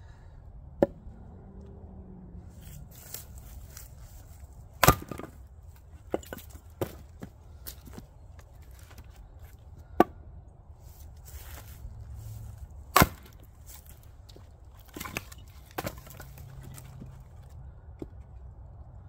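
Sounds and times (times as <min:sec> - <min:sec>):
axe splitting wood with crack: 0:00.8 - 0:01.0, 0:04.8 - 0:08.0, 0:12.9 - 0:18.3.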